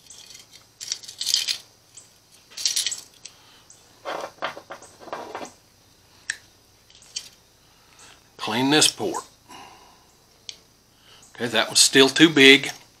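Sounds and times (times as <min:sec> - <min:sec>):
small metal wires clinking: 0:00.0 - 0:03.4, 0:06.2 - 0:07.4
dull knocks on bench: 0:04.1 - 0:05.5.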